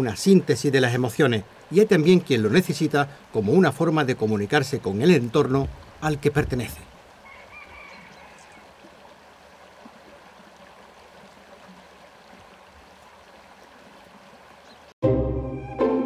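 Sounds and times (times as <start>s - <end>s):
shallow stream water running: 0.0s - 15.0s
faint bird call: 7.2s - 8.7s.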